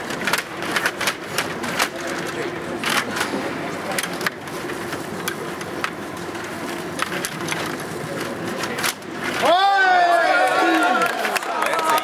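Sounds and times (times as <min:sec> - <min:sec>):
sharp plastic clicks: 0:00.0 - 0:06.0.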